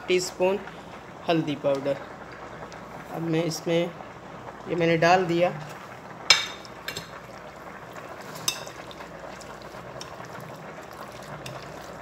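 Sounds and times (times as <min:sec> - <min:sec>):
spoon mixing wet marinade: 0:08.2 - 0:12.0.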